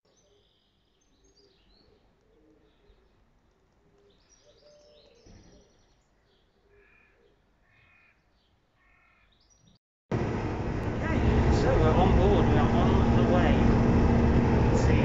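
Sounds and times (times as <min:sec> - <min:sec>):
small birds chirping: 0:00.1 - 0:09.8
harsh bird calls: 0:04.0 - 0:09.8.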